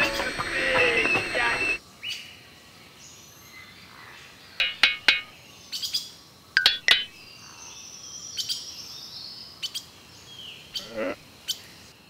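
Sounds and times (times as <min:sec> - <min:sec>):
birds chirping: 0:00.0 - 0:01.8.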